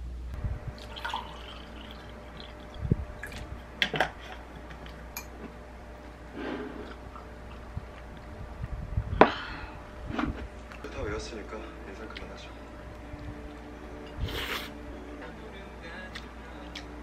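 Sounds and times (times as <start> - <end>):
water pouring into a glass: 0.8 - 3.5.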